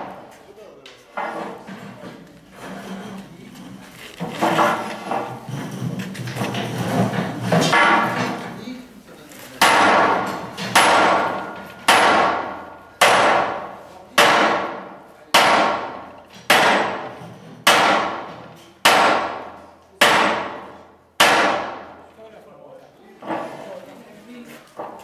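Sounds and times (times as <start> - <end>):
sledgehammer striking steel on anvil: 7.4 - 8.4, 9.6 - 22.0.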